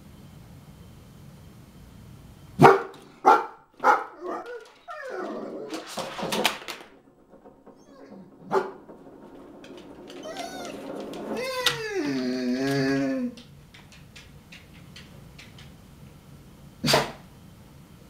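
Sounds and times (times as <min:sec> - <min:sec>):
dog barking: 0:02.6 - 0:04.6, 0:16.8 - 0:17.2.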